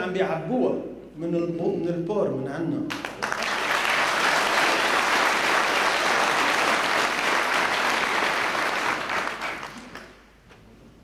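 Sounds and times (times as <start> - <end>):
audience applauding: 2.9 - 10.2.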